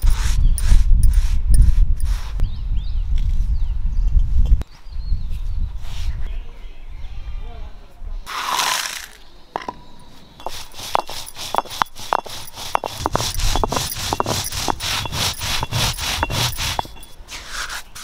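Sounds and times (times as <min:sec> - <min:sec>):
rhythmic scraping or sawing: 0:10.4 - 0:17.2.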